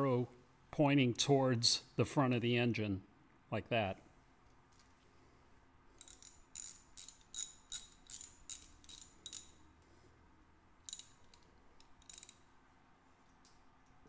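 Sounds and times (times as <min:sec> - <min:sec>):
metallic clinks: 0:06.0 - 0:09.7, 0:10.8 - 0:12.5
ratchet wrench clicking: 0:06.0 - 0:09.7, 0:10.8 - 0:12.5.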